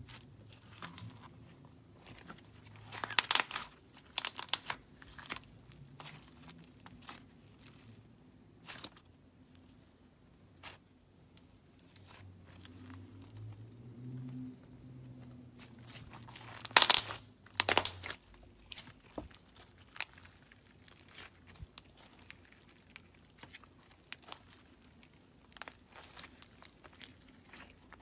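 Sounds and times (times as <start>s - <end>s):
hands squishing crunchy slime: 0.0s - 28.0s
slime crackling bursts: 2.8s - 5.4s, 15.6s - 28.0s.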